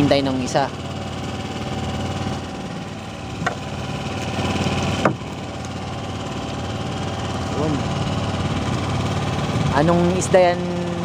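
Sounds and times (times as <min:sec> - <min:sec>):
boat engine idling: 0:00.0 - 0:11.0
short sharp knocks: 0:05.0 - 0:05.2.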